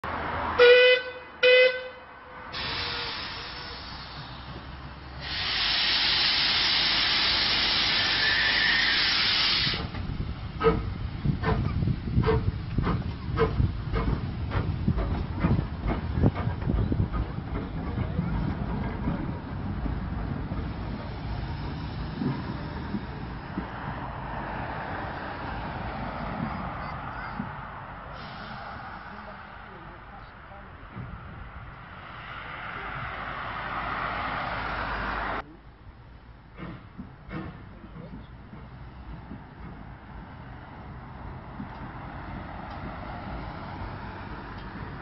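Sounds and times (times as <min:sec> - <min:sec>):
steam locomotive rumbling: 0:02.4 - 0:45.0
steam hissing from drain cocks: 0:02.6 - 0:10.0
steam locomotive whistle toot: 0:07.7 - 0:09.8.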